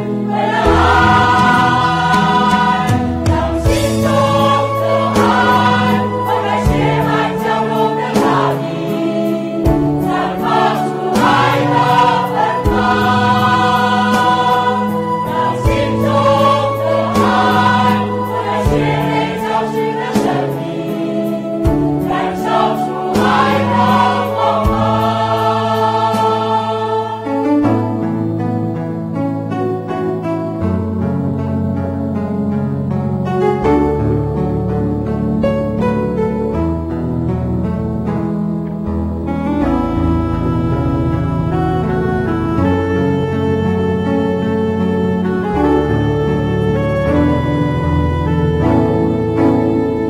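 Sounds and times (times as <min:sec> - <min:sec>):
choir singing: 0:00.0 - 0:27.8
musical accompaniment: 0:00.0 - 0:50.0.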